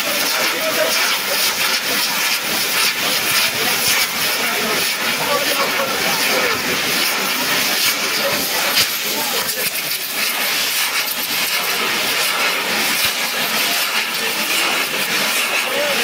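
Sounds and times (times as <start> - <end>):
fountain fireworks hissing and crackling: 0.0 - 16.0.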